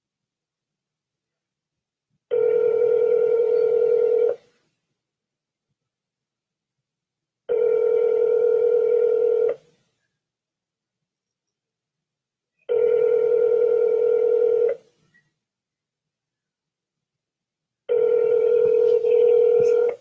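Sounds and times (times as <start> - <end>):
telephone ringback tone: 2.3 - 4.4, 7.5 - 9.6, 12.7 - 14.8, 17.9 - 20.0.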